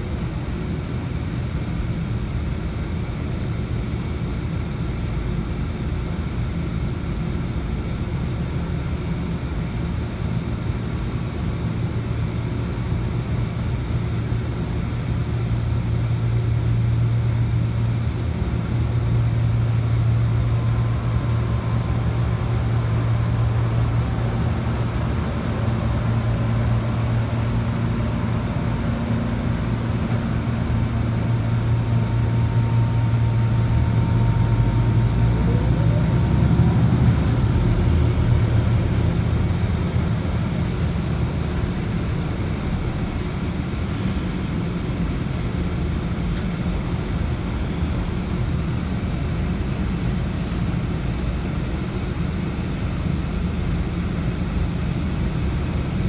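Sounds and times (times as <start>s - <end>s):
combine harvester engine drone: 0.0s - 56.0s.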